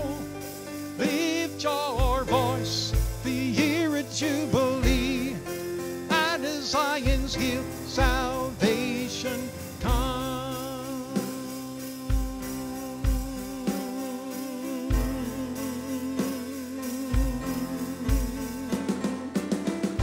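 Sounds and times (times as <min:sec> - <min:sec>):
man singing with vibrato: 0:00.0 - 0:19.3
keyboard playing: 0:00.0 - 0:20.0.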